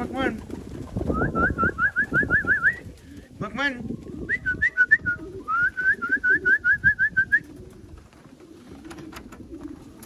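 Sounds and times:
pigeons cooing: 0.0s - 10.0s.

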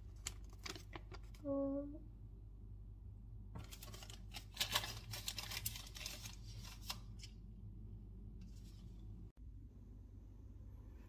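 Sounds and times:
packaging rustling and crinkling: 0.0s - 1.4s, 3.6s - 7.3s
faint low hum: 0.0s - 11.0s.

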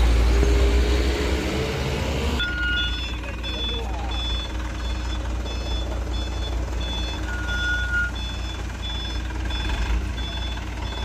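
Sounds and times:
diesel truck engine idling: 0.0s - 11.0s
truck reversing alarm beeping: 2.3s - 11.0s.

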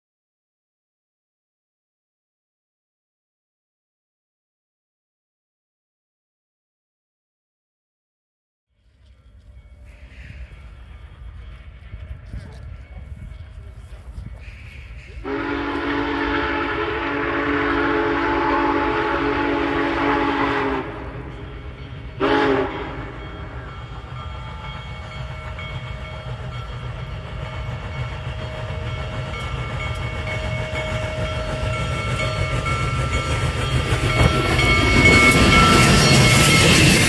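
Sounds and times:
steam locomotive chime whistle: 8.8s - 37.0s
train rumbling: 8.8s - 37.0s.

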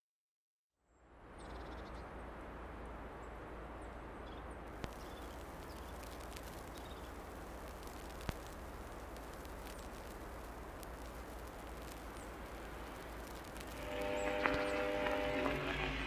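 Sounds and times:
small clicks: 4.8s - 15.6s
even hiss: 4.8s - 16.0s
low hum: 5.0s - 16.0s.

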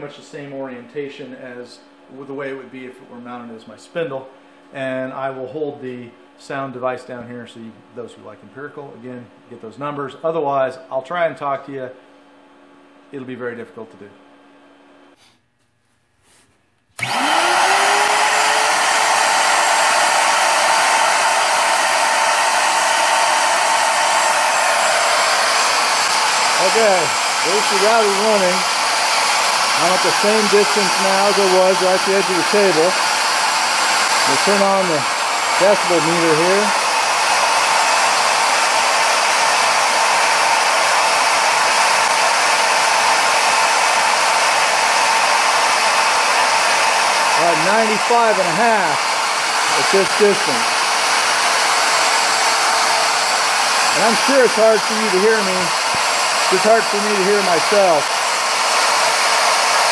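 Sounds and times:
router motor whine: 17.0s - 59.9s
rush of fan air: 17.0s - 59.9s.

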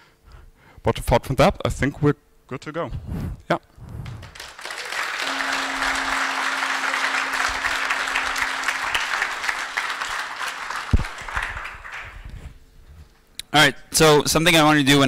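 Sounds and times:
audience applauding: 4.2s - 12.3s.

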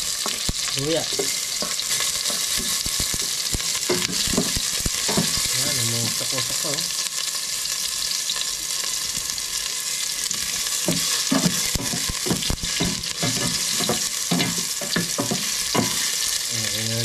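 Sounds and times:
spatula scraping pan: 0.0s - 6.4s, 10.3s - 16.5s
garlic sizzling in oil: 0.0s - 17.0s.

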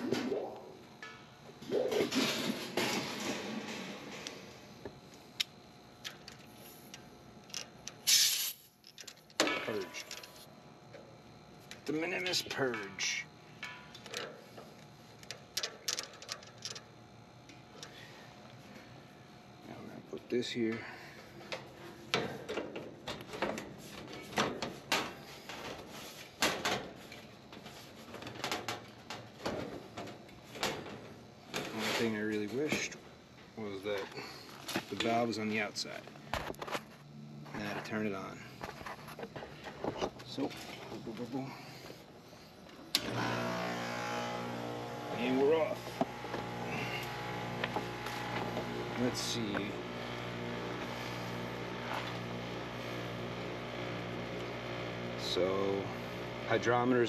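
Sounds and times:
refrigerant hissing from hose: 8.0s - 8.7s, 43.4s - 53.6s
hands working on sheet metal: 44.1s - 53.0s.

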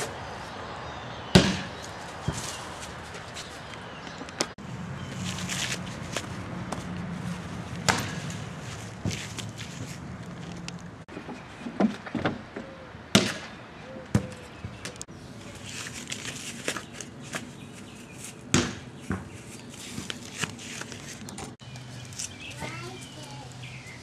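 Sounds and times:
sharp thuds and knocks: 7.8s - 10.0s.

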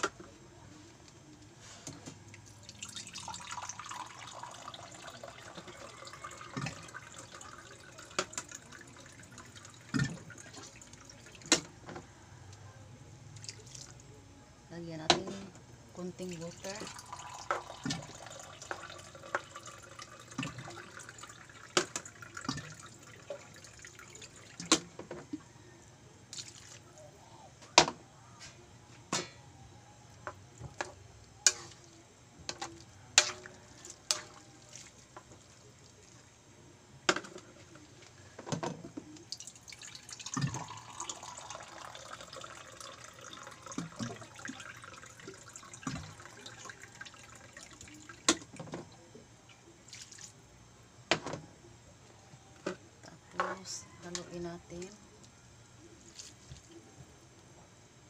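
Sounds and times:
noodles cooking wet sizzle: 0.9s - 11.8s, 16.0s - 25.0s, 30.0s - 48.6s.

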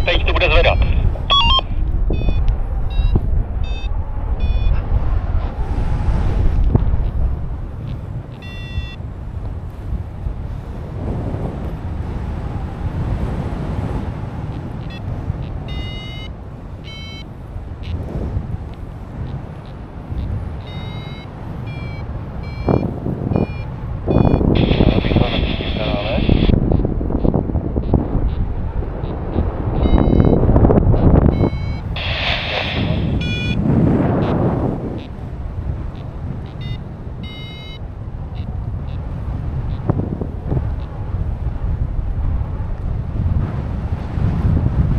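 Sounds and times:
short high beeps: 0.0s - 4.8s, 7.9s - 9.0s, 15.7s - 18.0s, 20.1s - 26.5s, 29.8s - 30.4s, 31.0s - 33.6s, 36.4s - 37.8s
wind buffeting microphone: 0.0s - 44.9s.

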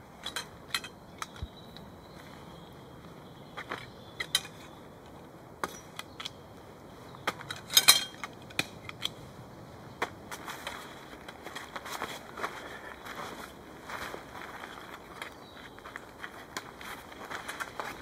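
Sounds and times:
metal tent poles clicking and clinking: 0.1s - 1.6s, 3.6s - 4.8s, 5.6s - 6.4s, 7.3s - 9.2s.

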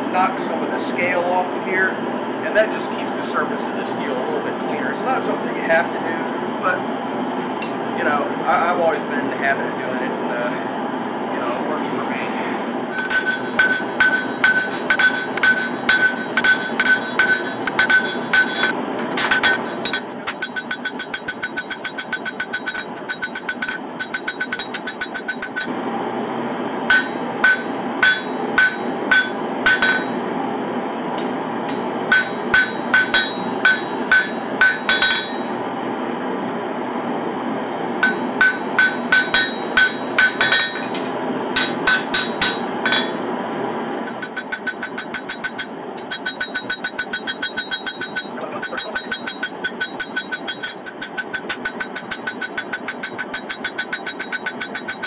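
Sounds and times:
hammer ringing on anvil: 13.0s - 25.7s, 26.9s - 30.2s, 31.7s - 35.6s, 38.0s - 43.3s, 44.1s - 55.0s.

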